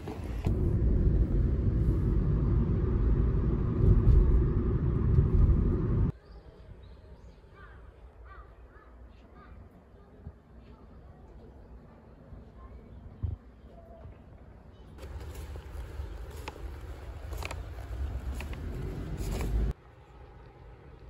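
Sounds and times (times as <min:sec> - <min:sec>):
muffled fabric rumbling: 0:00.3 - 0:06.1.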